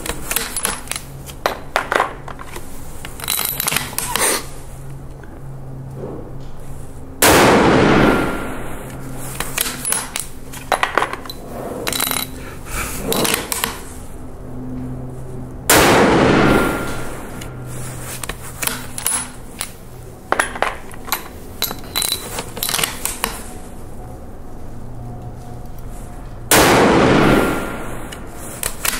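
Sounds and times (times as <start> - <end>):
low steady hum: 0.0 - 28.9
rifle shots: 7.2 - 8.6, 15.7 - 17.4, 26.5 - 28.1.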